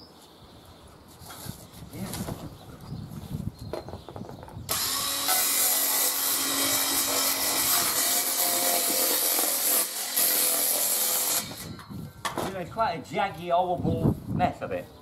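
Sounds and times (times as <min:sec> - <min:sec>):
power saw cutting plastic board: 0:04.7 - 0:11.7.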